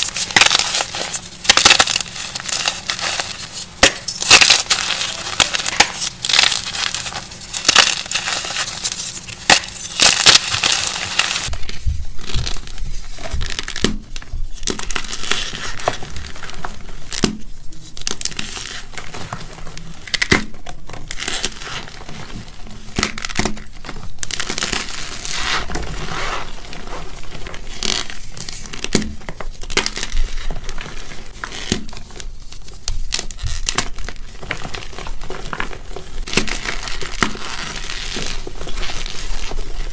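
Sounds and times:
chalk crushed by hand: 0.0 - 11.5.

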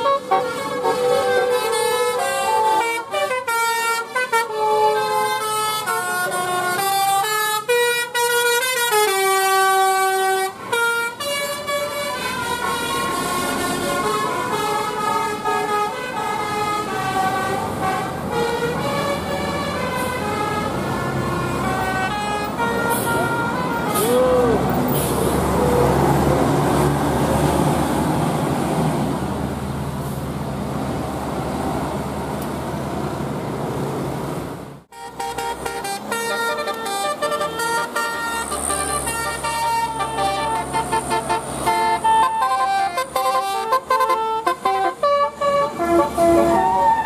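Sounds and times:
bus horn playing fast melody: 0.0 - 25.0, 34.9 - 47.0
bus engine and tyres rumbling: 0.0 - 47.0.

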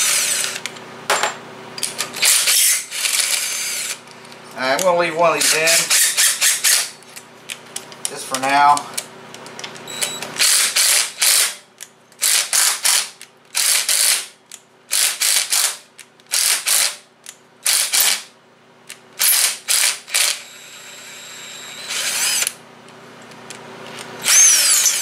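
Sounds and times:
impact driver bursts: 2.2 - 4.0, 10.0 - 11.6, 12.2 - 14.3, 17.7 - 18.3, 19.2 - 22.6, 24.2 - 25.0.

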